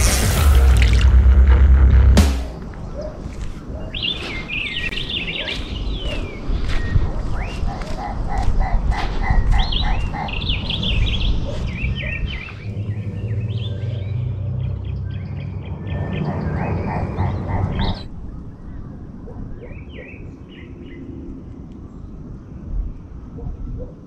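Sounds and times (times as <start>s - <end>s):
bird calling low rhythmic notes: 2.6s - 20.7s
small birds chirping: 2.7s - 22.3s.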